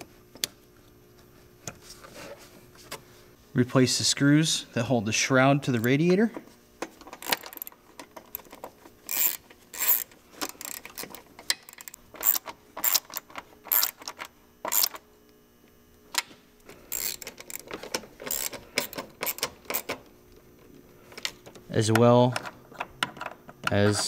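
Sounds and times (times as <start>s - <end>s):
ratchet wrench clicking: 7.2s - 7.7s, 9.1s - 14.0s, 14.7s - 15.0s, 16.9s - 17.6s, 18.2s - 19.9s.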